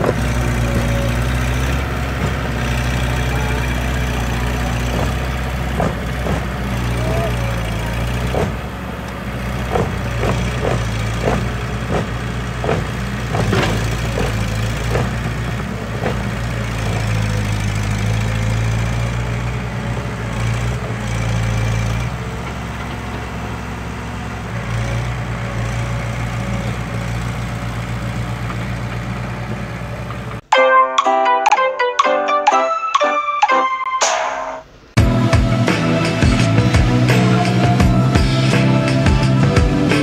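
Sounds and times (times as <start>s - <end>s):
diesel engines running: 0.0s - 30.5s, 34.9s - 40.0s
rapid knocks: 4.8s - 6.6s.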